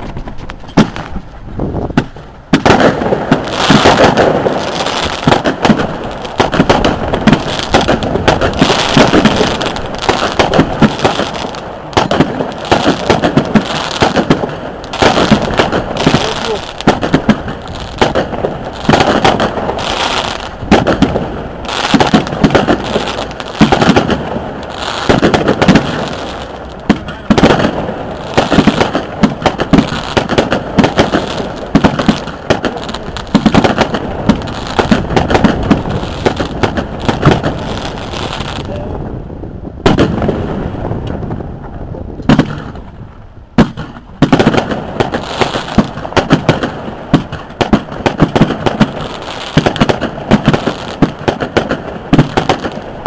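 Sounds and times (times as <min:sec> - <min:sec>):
fireworks bangs and crackling: 0:00.0 - 0:53.0.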